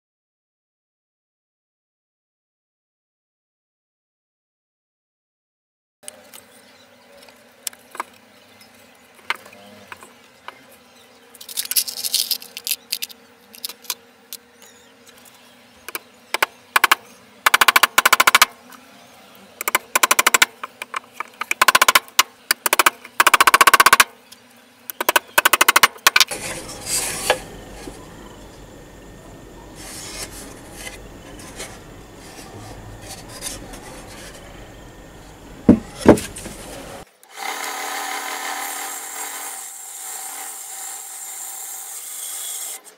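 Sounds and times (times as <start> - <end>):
hammer tapping nails into wood: 16.4 - 18.5, 19.6 - 24.1, 25.0 - 26.3.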